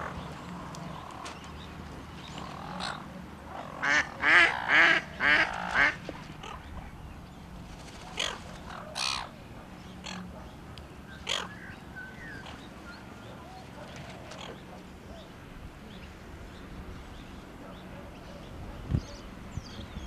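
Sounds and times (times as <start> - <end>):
ducks quacking: 2.4 - 6.6, 8.0 - 9.3.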